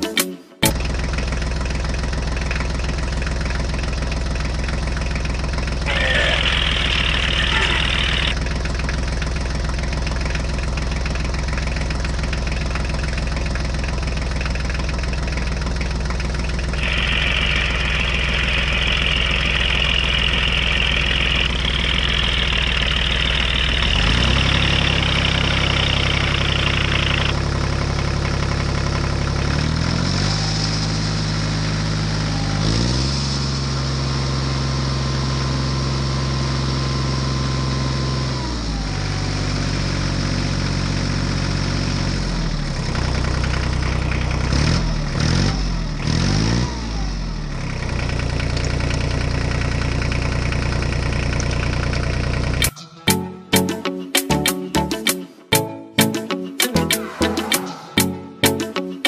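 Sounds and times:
tractor engine idling: 0.6s - 32.6s, 33.3s - 46.0s, 46.9s - 54.0s.

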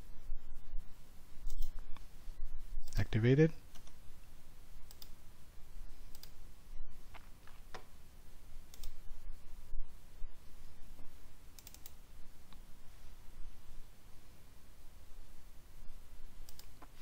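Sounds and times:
low steady hum: 0.0s - 17.0s
computer mouse clicking: 4.8s - 5.2s, 6.1s - 6.4s, 8.7s - 9.0s, 11.6s - 12.6s, 16.4s - 17.0s.

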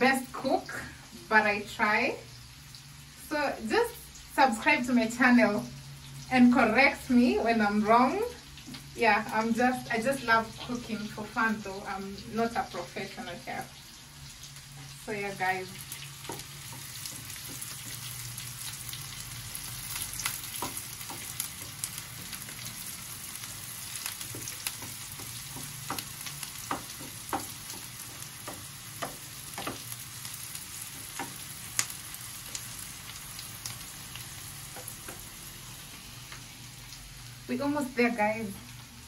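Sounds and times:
onions sizzling in a pan: 0.0s - 39.0s
spatula clicking and tapping: 15.9s - 18.8s, 19.6s - 32.8s, 34.7s - 35.4s.

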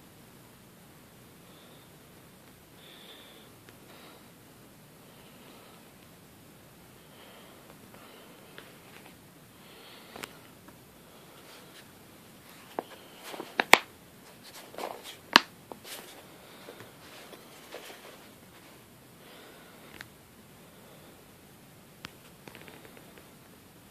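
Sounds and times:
faint rustling: 7.2s - 20.1s.

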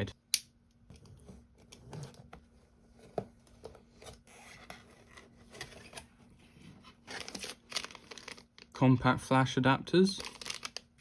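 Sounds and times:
cardboard and tape rustling: 1.0s - 8.7s, 10.2s - 10.8s.

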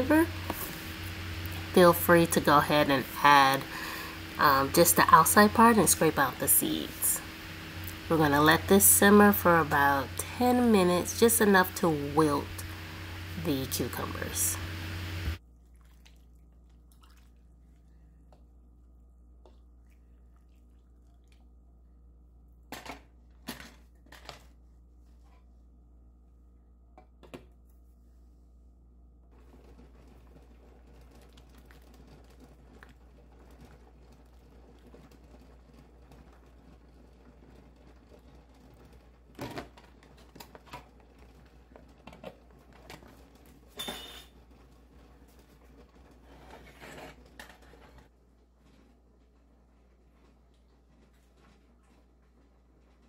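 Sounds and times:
faint steady hum: 0.0s - 29.4s.

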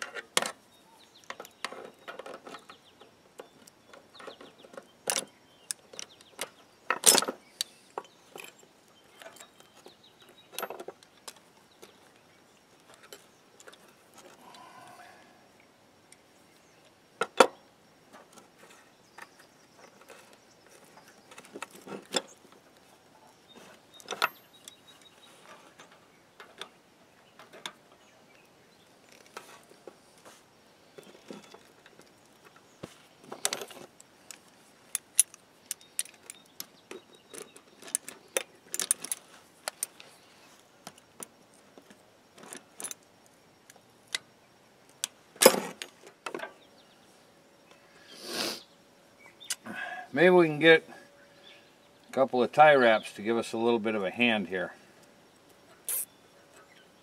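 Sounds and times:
metal tools clinking on wood: 1.2s - 11.4s, 23.5s - 26.7s, 33.2s - 40.1s, 45.4s - 46.6s.

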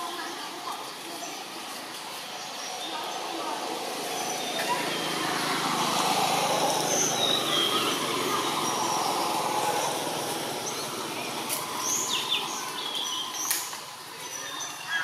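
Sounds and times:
motor vehicle going past: 2.0s - 14.2s.

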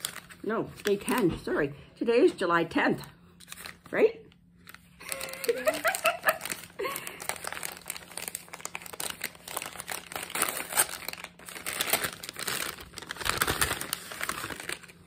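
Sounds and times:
paper bag crinkling: 0.0s - 1.2s, 4.6s - 15.0s.

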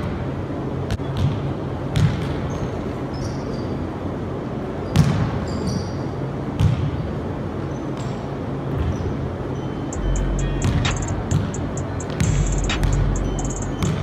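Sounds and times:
basketball bouncing on gym floor: 0.9s - 2.6s, 6.6s - 7.1s, 10.6s - 14.0s
sneakers squeaking on floor: 2.0s - 3.9s, 4.8s - 7.1s, 7.7s - 14.0s.

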